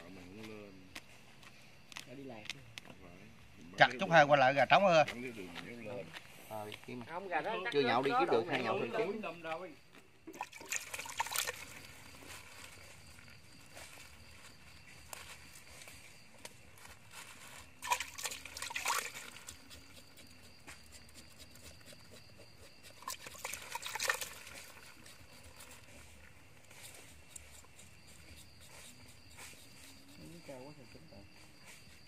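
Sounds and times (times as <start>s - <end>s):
water splashing in a bucket: 10.3s - 12.0s, 17.8s - 20.0s, 22.9s - 25.2s.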